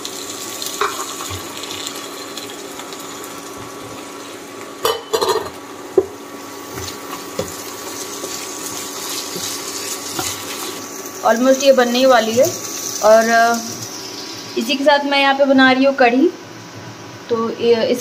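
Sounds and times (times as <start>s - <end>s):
masala sizzling: 0.0s - 17.2s
spatula stirring in frying pan: 6.0s - 11.2s.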